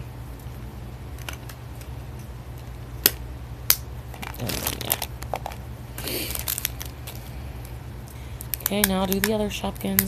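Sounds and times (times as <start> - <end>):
toy packaging crinkling: 4.1 - 7.3, 8.4 - 10.0.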